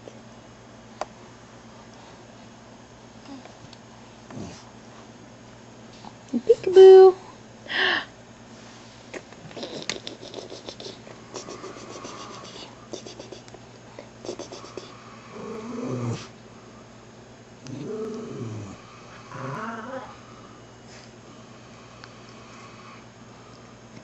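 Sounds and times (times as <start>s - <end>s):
wet sucking clicks: 9.1s - 13.6s.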